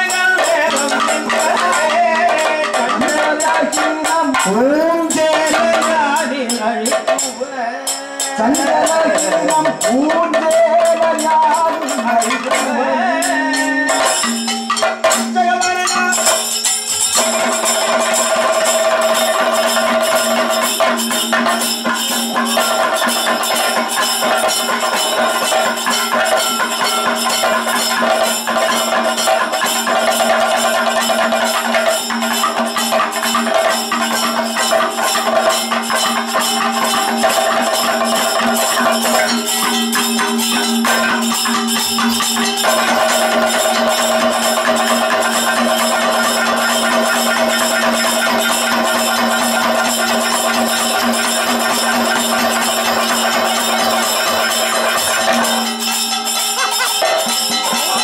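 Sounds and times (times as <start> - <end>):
person singing: 0.0 - 14.4, 56.5 - 58.0
fast drum percussion: 0.0 - 58.0
hand cymbals clashing: 0.0 - 58.0.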